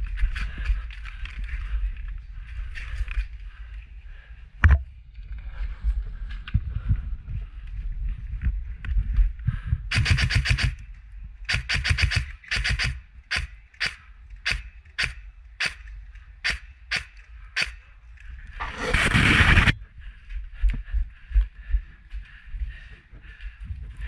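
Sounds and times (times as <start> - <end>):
electric airsoft gun firing: 9.9 - 10.8, 11.5 - 15.8
loud rush of noise: 18.6 - 19.8.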